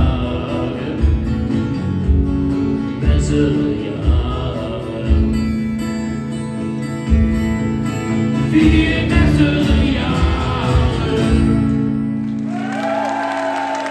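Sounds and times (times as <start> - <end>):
person singing: 0.0 - 1.9, 2.9 - 5.6, 8.3 - 11.9
acoustic guitars strumming: 0.0 - 12.6.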